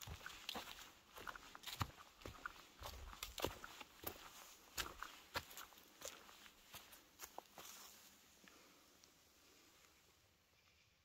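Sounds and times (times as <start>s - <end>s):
footsteps on trail: 0.0s - 8.2s.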